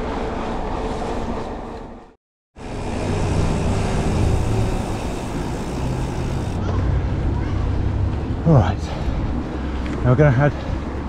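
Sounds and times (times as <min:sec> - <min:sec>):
wind rush: 0:02.6 - 0:09.8
bike tyre rumble on gravel: 0:02.8 - 0:06.6.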